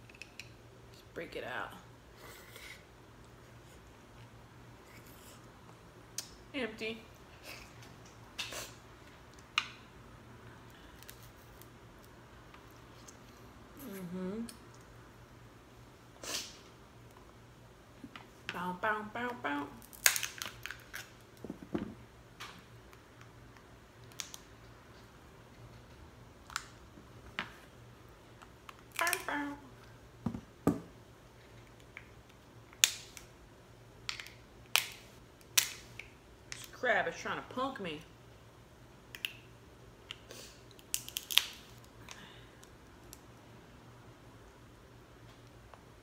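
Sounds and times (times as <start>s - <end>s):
shell cracking: 19.8s - 21.2s, 34.1s - 36.1s, 40.1s - 43.2s.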